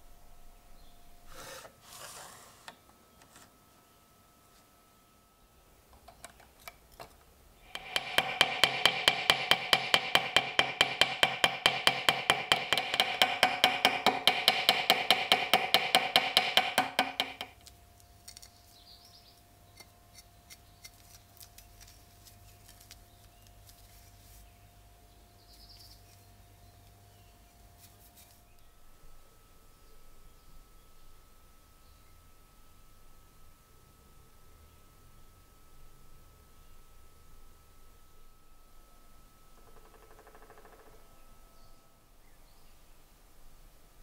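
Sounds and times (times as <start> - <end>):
hammer tapping on metal pin: 7.6 - 17.7.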